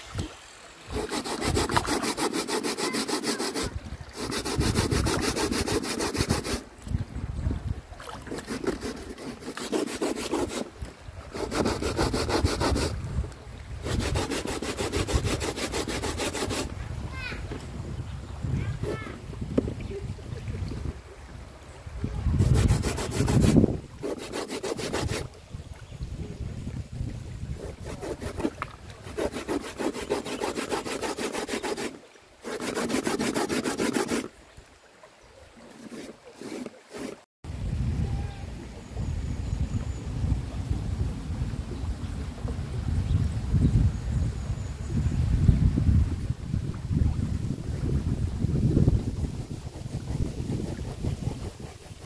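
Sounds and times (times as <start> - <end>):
rapid rasping scrapes: 0.9 - 6.6, 8.2 - 10.7, 11.3 - 13.0, 13.8 - 16.7, 22.4 - 25.3, 27.5 - 34.3, 35.7 - 37.3, 49.1 - 52.0.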